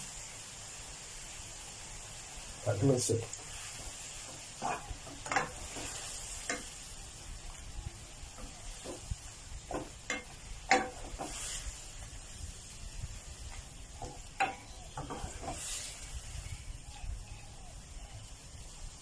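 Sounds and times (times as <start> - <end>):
chicken sizzling in a pan: 0.0 - 19.0
spatula knocking and scraping pan: 3.8 - 6.8, 8.4 - 11.8, 13.5 - 15.9.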